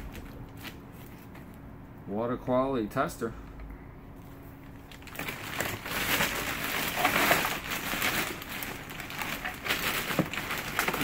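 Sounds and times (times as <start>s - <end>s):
plastic garbage bag rustling: 4.6s - 11.0s.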